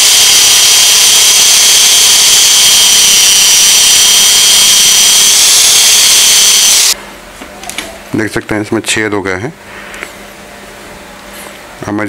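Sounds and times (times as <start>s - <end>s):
drill whining: 0.0s - 7.0s
grinding metal: 0.0s - 7.0s.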